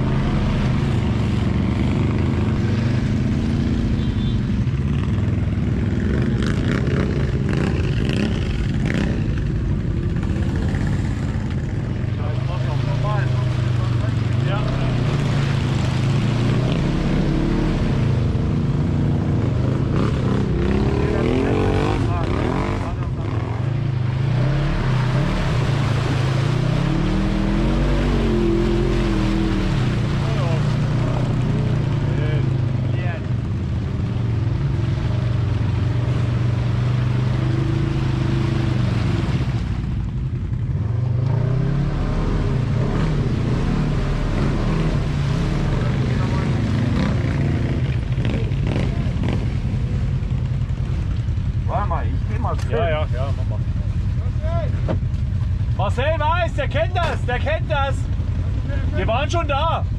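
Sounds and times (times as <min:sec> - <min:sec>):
water splashing around wheels: 0:00.0 - 0:59.9
vehicle engine revving: 0:12.2 - 0:33.2, 0:40.5 - 0:55.7.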